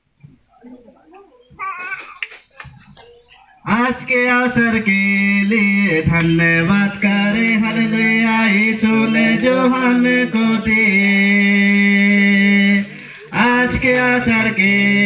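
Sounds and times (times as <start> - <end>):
man chanting: 3.4 - 15.0.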